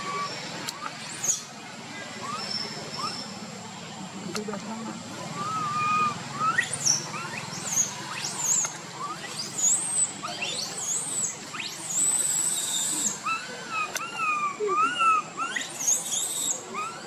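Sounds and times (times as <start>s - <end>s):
baby monkey high squeaks: 2.2s - 3.3s, 5.4s - 17.0s
baby monkey wavering coos: 2.2s - 3.3s, 5.3s - 17.0s.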